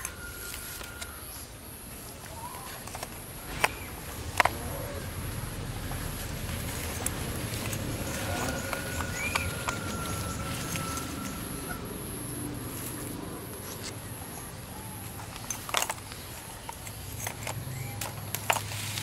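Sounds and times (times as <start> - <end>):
rustling of dry fibre: 0.0 - 19.0
whistle-like tone: 8.0 - 12.4.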